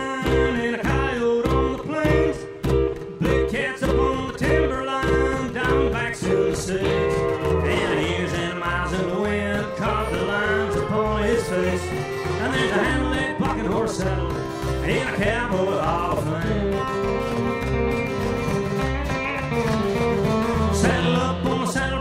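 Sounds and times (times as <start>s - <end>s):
acoustic guitar strumming: 0.0s - 22.0s
upright bass plucked: 0.0s - 22.0s
pedal steel guitar sliding: 5.1s - 15.2s.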